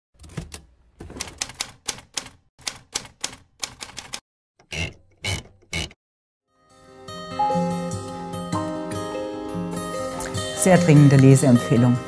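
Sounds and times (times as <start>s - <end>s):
typewriter keys clacking: 1.2s - 4.2s
music: 6.5s - 12.0s.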